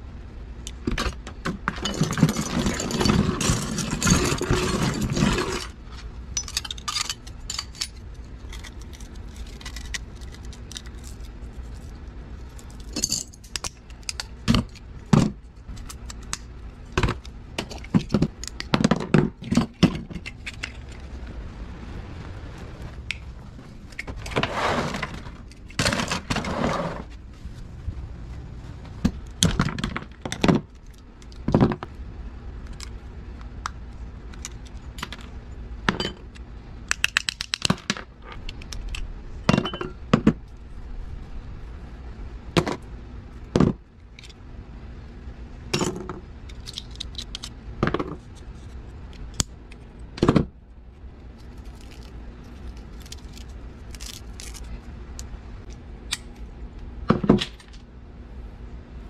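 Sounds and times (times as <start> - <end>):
small pieces clinking on metal: 6.4 - 11.3, 12.6 - 14.2
pliers cracking plastic: 36.9 - 39.0, 51.6 - 56.4.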